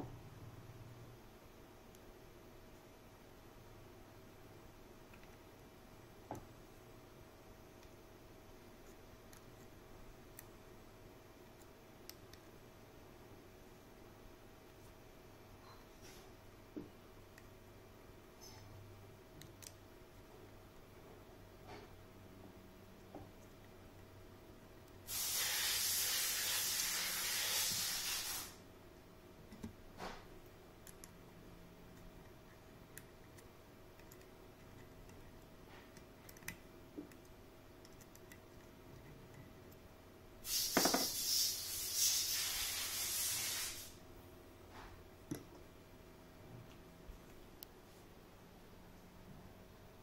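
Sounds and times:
compressed air hissing: 25.1s - 28.6s, 40.4s - 44.0s.

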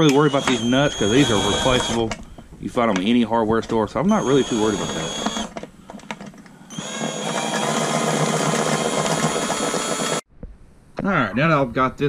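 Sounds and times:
cordless drill running: 0.0s - 2.1s, 4.1s - 10.3s.

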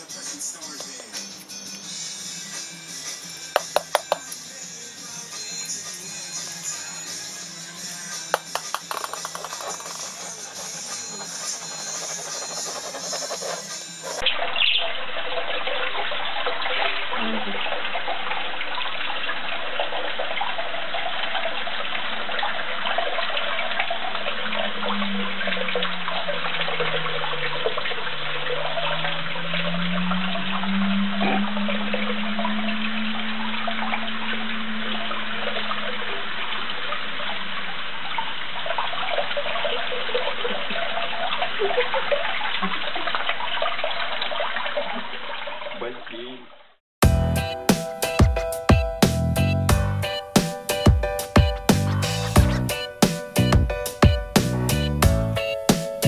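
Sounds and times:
tap water running and splashing: 3.1s - 4.5s, 8.3s - 45.8s.

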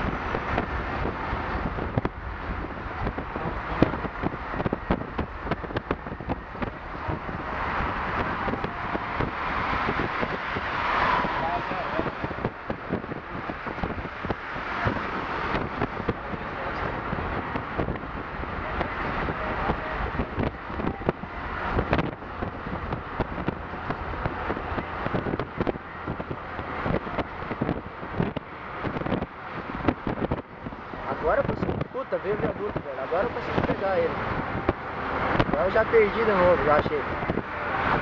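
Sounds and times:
wind buffeting microphone: 0.0s - 38.0s
microphone thumps: 3.0s - 10.6s, 19.7s - 30.8s.

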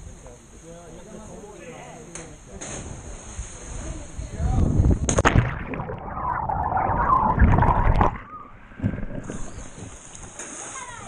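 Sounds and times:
muffled underwater churning: 4.8s - 10.1s
rushing water hiss: 9.1s - 11.0s.

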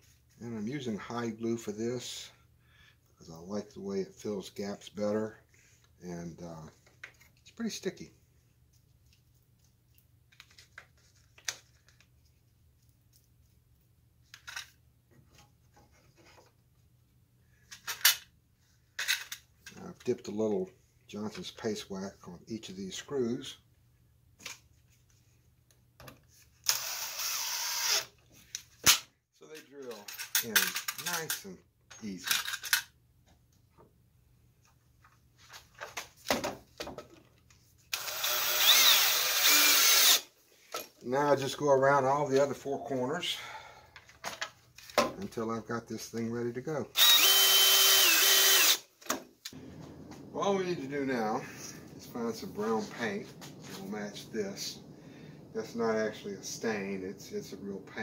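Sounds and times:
cordless drill driving screw: 26.6s - 28.1s, 37.9s - 40.3s, 47.0s - 48.9s.

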